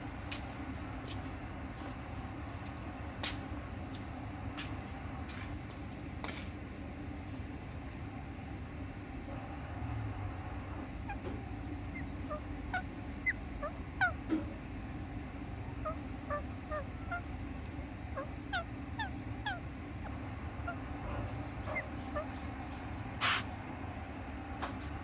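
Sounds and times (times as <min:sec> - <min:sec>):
parakeet chirping and squeaking: 0:11.9 - 0:14.2, 0:15.8 - 0:17.3, 0:18.2 - 0:19.6, 0:20.6 - 0:23.4
hiss-like burst of noise: 0:23.2 - 0:23.5.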